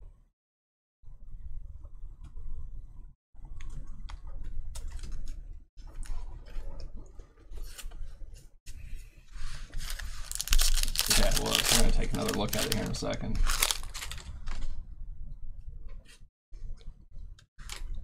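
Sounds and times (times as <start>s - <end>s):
rustling and crinkling: 3.6s - 14.8s.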